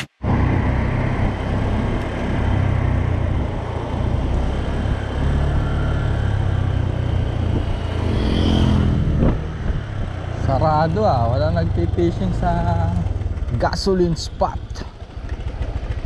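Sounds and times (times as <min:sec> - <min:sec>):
scooter engine: 0:00.2 - 0:16.0
wind rushing over microphone: 0:07.1 - 0:10.4.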